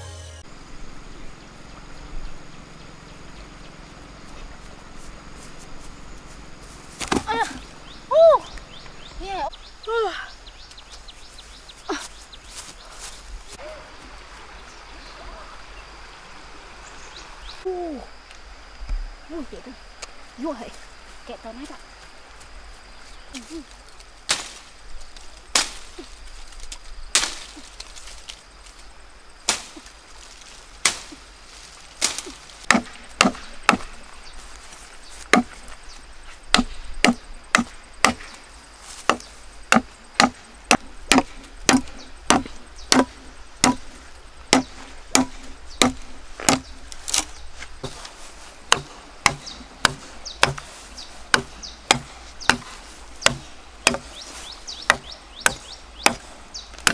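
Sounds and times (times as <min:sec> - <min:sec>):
machete chopping bamboo: 0:07.0 - 0:07.6, 0:24.3 - 0:24.6, 0:25.5 - 0:25.9, 0:27.1 - 0:27.9, 0:29.5 - 0:29.9, 0:30.8 - 0:31.2, 0:32.0 - 0:34.0, 0:35.2 - 0:35.6, 0:36.5 - 0:38.4, 0:39.0 - 0:48.1, 0:48.7 - 0:54.2, 0:54.8 - 0:56.9.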